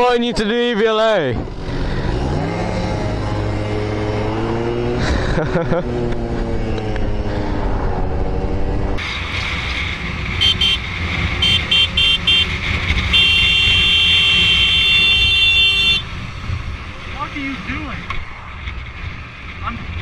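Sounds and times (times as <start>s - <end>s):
road and riding noise: 0.0s - 20.0s
vehicle horn toots: 10.4s - 16.1s.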